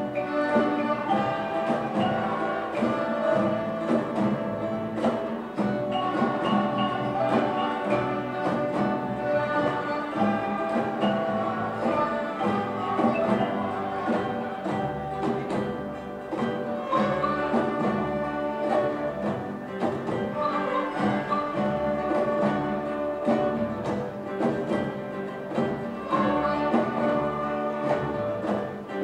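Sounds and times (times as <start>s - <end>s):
children's orchestra playing: 0.0s - 29.0s.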